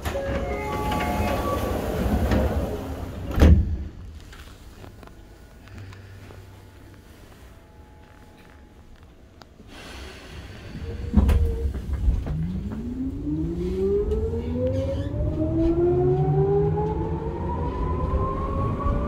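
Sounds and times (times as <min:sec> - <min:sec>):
low train rumble: 0:00.0 - 0:19.0
rising multi-tone motor whine: 0:12.3 - 0:19.0.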